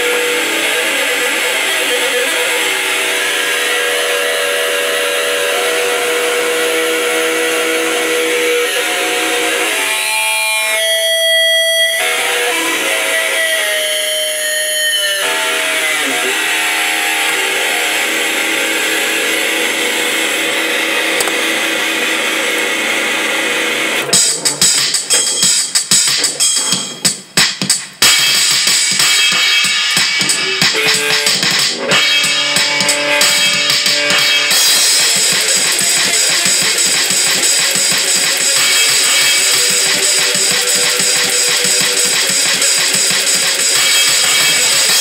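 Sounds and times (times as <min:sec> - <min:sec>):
steady guitar feedback tone: 0:00.0 - 0:27.0, 0:28.0 - 0:45.0
distorted electric guitar drone: 0:00.0 - 0:27.1, 0:28.0 - 0:45.0.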